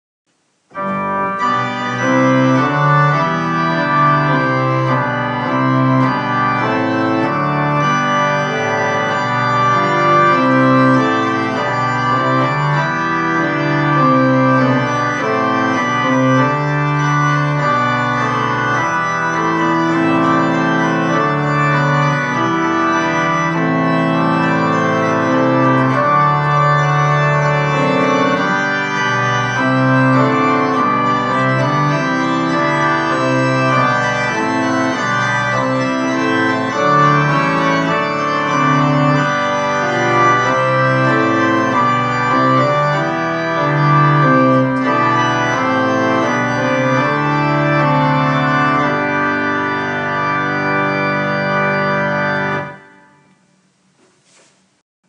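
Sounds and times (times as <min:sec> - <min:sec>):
keyboard playing slow chords: 0:00.7 - 0:53.3.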